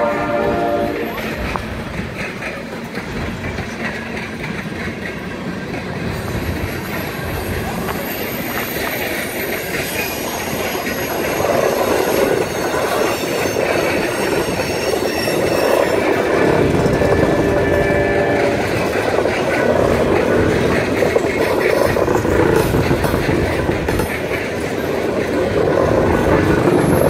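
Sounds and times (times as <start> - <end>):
train wheels rumbling on rail: 0.0 - 27.0
high wheel squeal: 6.2 - 19.0.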